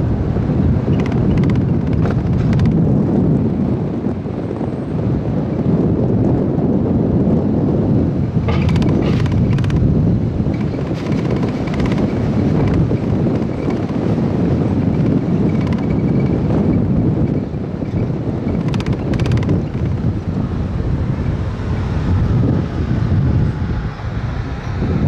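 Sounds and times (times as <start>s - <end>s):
low street rumble: 0.0s - 25.0s
wind buffeting microphone: 0.0s - 25.0s
brief rattles: 8.4s - 9.9s.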